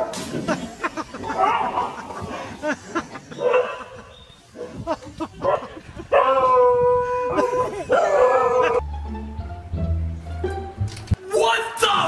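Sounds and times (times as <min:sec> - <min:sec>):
dogs barking and yelping: 0:01.0 - 0:08.8.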